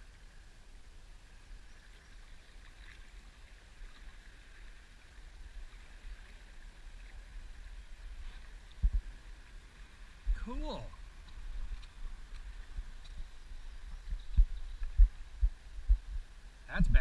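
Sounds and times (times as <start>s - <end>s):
water lapping: 1.5s - 15.9s
low rumble: 11.0s - 17.0s
light ticks: 11.2s - 13.2s, 14.0s - 15.1s.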